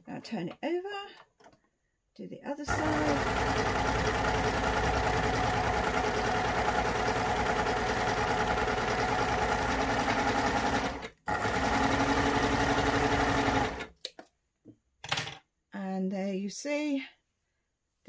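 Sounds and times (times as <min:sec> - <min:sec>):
sewing machine stitching: 0:02.7 - 0:14.0.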